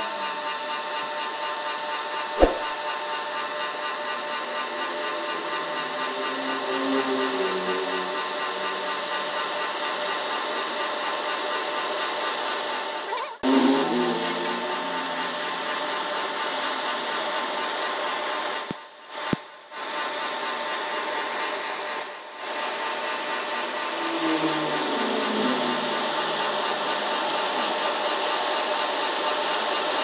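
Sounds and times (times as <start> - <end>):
air blower hissing through forge fire: 2.4 - 2.8.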